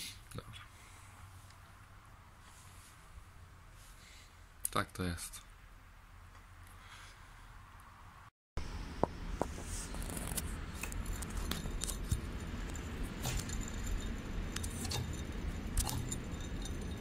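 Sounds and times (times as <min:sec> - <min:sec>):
pulley grinding with metallic clicks: 0:10.1 - 0:17.0.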